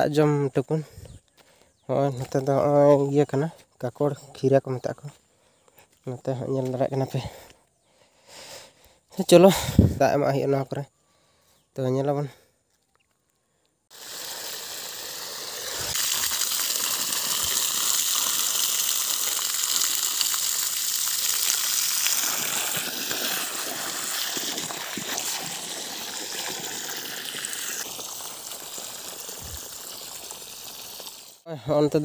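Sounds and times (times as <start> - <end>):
water gushing from a hose: 13.9 - 31.5.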